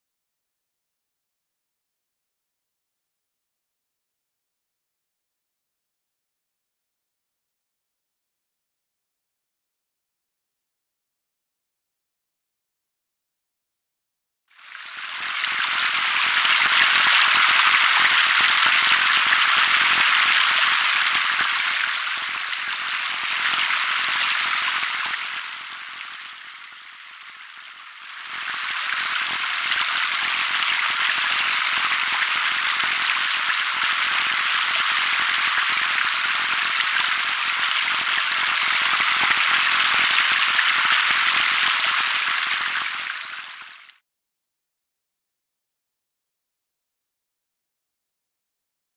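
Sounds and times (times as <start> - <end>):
water splashing from jets: 15.1 - 43.9.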